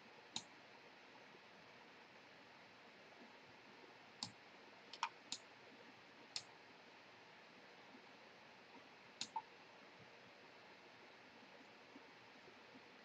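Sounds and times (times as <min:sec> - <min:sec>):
computer mouse clicks: 0:04.2 - 0:05.5, 0:06.3 - 0:06.5, 0:09.2 - 0:09.5.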